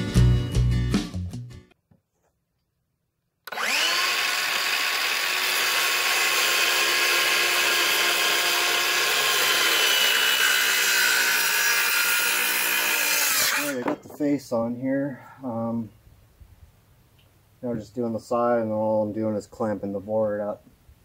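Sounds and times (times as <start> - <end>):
circular saw cutting wood: 3.5 - 14.2.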